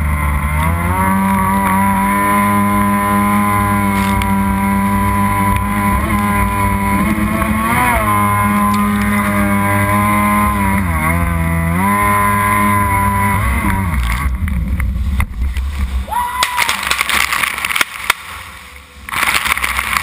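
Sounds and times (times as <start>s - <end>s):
jet ski engine buzzing: 0.0s - 20.0s
water spray and splashing: 16.4s - 20.0s.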